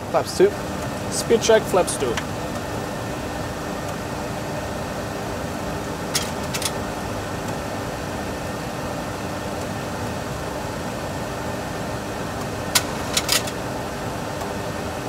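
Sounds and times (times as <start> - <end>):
cockpit background noise: 0.0 - 15.0.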